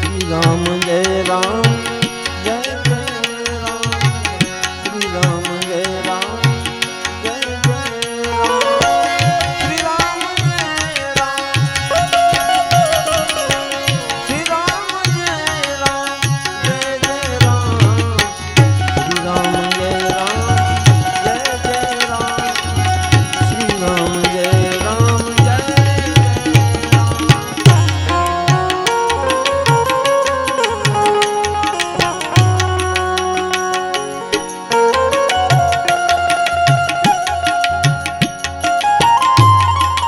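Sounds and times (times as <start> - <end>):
man singing devotional song: 0.0 - 39.6
harmonium: 0.0 - 40.0
hand drum beat: 17.4 - 33.5.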